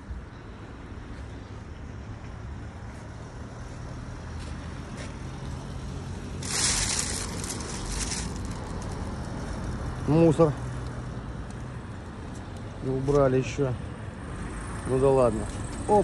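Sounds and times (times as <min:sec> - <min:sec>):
traffic rumble: 0:00.0 - 0:16.0
loud hissing rush: 0:06.4 - 0:09.1.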